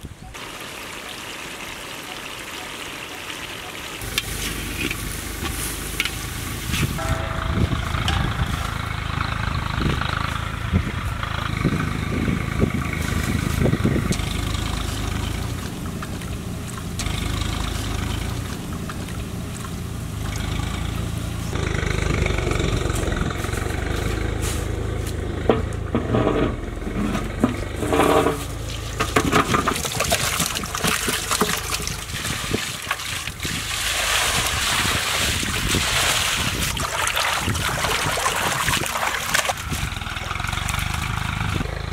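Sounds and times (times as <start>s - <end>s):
knocks and clanks: 7.0s - 10.4s, 25.2s - 30.1s
water splashing into basin: 28.6s - 39.8s.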